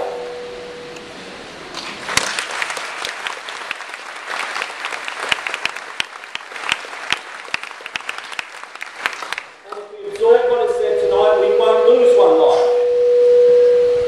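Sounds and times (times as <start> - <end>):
crowd applauding: 1.7 - 10.3
sharp single claps: 1.7 - 10.3.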